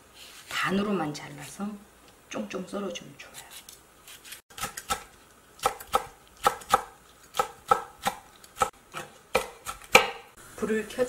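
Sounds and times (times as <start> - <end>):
knife chopping on wooden board: 4.6 - 10.3.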